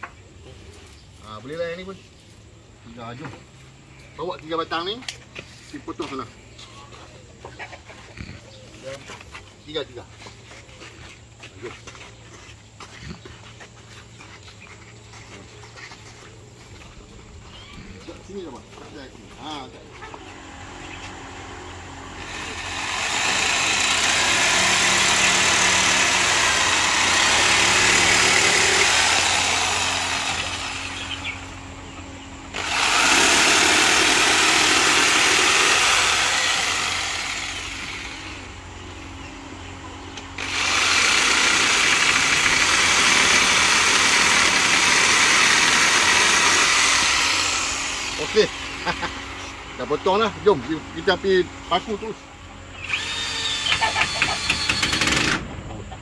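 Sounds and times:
steady motor hum: 0.0 - 56.0
power saw cutting wood: 17.8 - 39.2, 40.1 - 52.2, 52.8 - 55.8.

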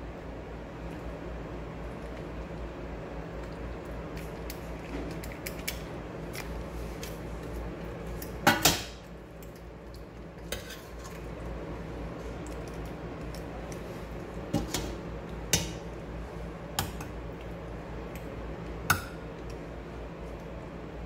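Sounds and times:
metal spoon clinking and scraping: 10.5 - 11.2.

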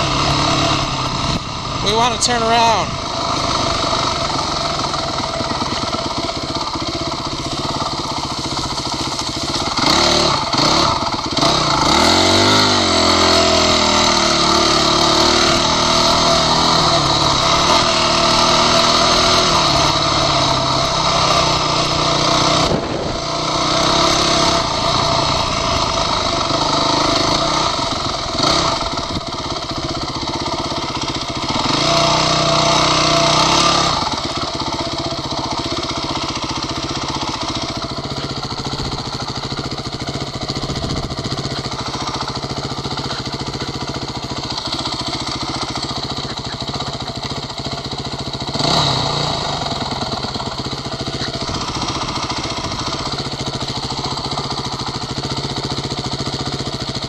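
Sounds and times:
dirt bike engine revving: 0.0 - 57.0
wind on microphone: 22.6 - 23.3.

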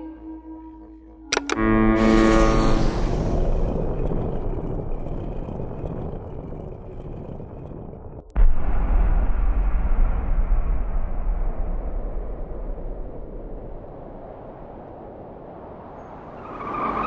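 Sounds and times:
deep rumble: 0.0 - 16.4
noisy rumble: 0.0 - 16.4.

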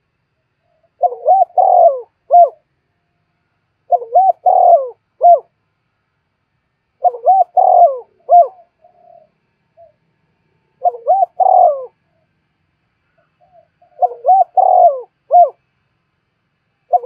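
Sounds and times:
dove cooing: 0.6 - 2.7, 3.8 - 5.6, 7.0 - 10.1, 10.8 - 12.4, 13.2 - 15.7.

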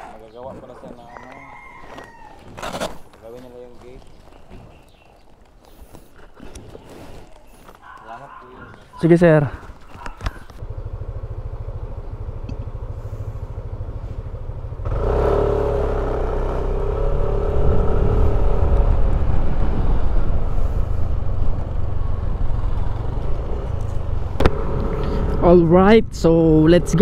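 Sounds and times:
road and wind rumble: 0.0 - 27.0
motor scooter engine: 10.0 - 25.6.

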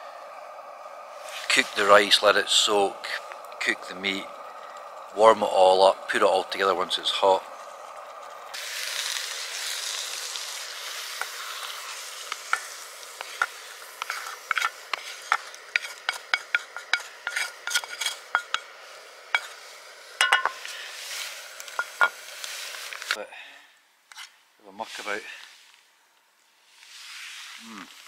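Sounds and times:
sauce sizzling in frying pan: 0.0 - 23.2
spatula tapping and scraping pan: 12.3 - 18.7, 19.4 - 19.6, 20.2 - 20.6.

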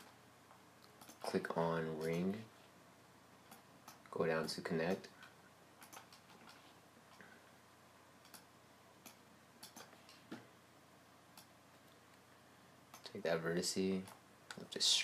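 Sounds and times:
faint computer mouse clicks: 8.2 - 10.4.

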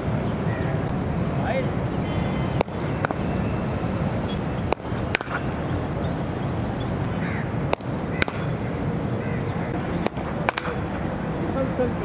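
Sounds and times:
low background noise: 0.0 - 12.0
faint bird chirps: 0.5 - 2.6
cricket bat hitting ball: 2.6 - 3.3, 4.7 - 5.6, 7.0 - 8.6, 9.8 - 11.0.

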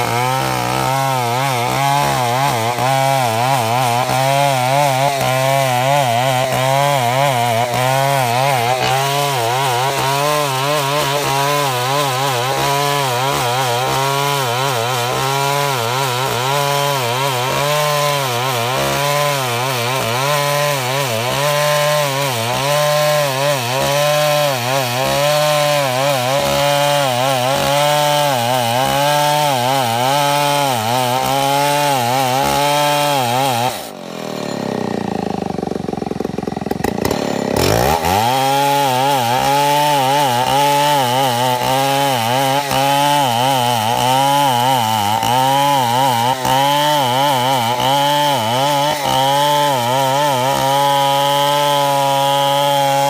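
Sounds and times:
chainsaw cutting wood: 0.0 - 53.0.

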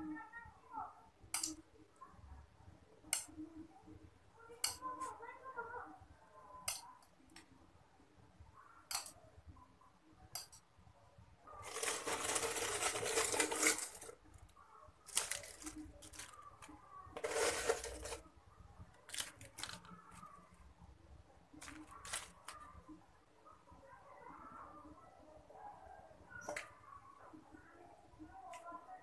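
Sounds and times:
crackers rattling in a plastic jar: 11.6 - 14.3, 15.1 - 18.2, 19.1 - 20.0, 21.6 - 22.6.

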